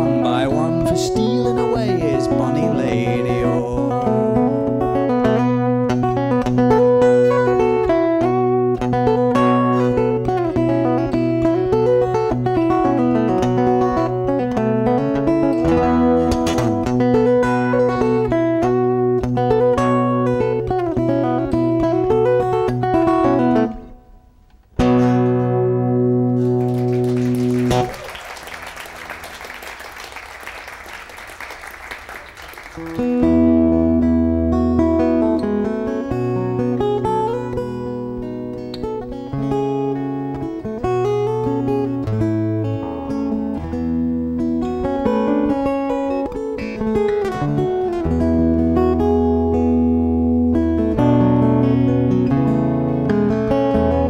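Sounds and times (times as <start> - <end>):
fingerpicked acoustic guitar: 0.0 - 28.0, 32.4 - 54.0
applause: 26.4 - 33.3.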